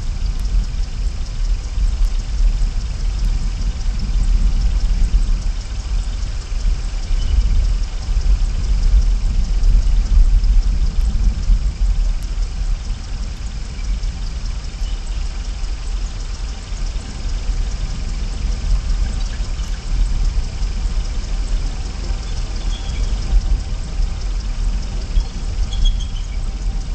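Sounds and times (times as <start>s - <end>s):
low rushing rumble: 0.0s - 26.9s.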